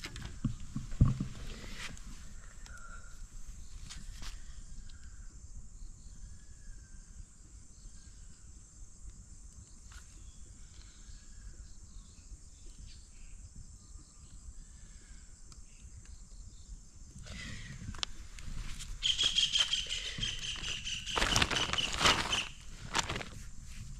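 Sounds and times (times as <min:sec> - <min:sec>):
crickets and insects chirring: 0:00.0 - 0:23.9
faint clicks: 0:02.4 - 0:02.9
bird chirps: 0:19.0 - 0:22.7.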